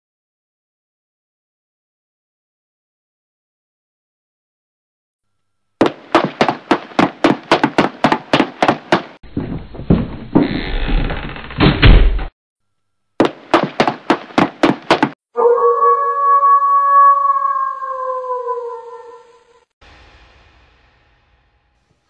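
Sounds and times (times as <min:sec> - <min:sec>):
rapid knocking: 0:05.8 - 0:10.4, 0:13.2 - 0:15.2.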